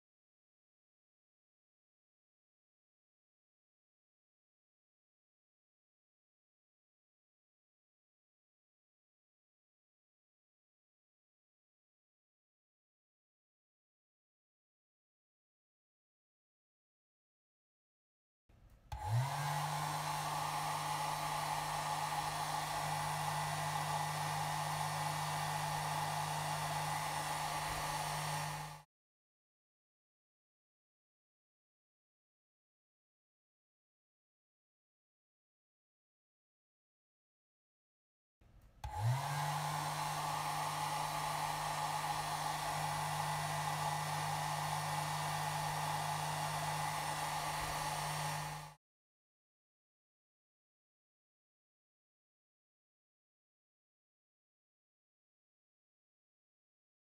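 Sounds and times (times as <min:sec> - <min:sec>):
hair dryer blowing: 0:18.9 - 0:28.9, 0:38.8 - 0:48.8.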